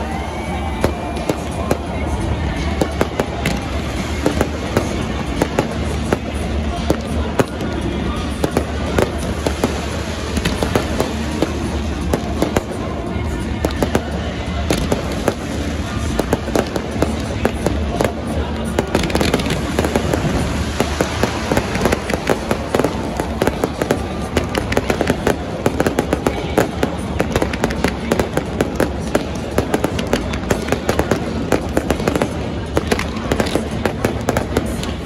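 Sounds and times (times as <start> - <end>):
fireworks bangs and crackles: 0.0 - 35.0.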